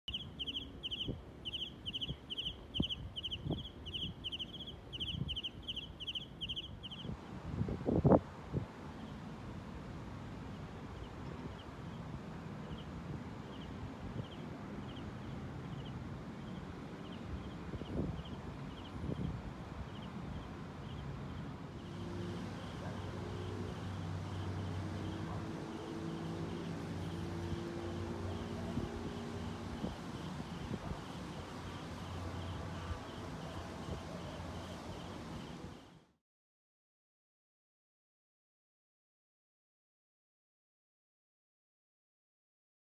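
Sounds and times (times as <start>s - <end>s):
faint high chirp: 0.1s - 7.1s
cricket chirping: 0.1s - 7.2s, 12.6s - 19.3s, 19.9s - 36.0s
wind thumps on microphone: 2.0s - 4.4s.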